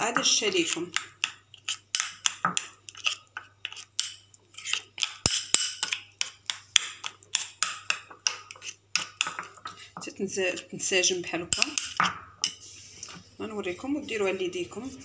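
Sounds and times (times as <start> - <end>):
spoon scraping a bowl: 0.0 - 15.0.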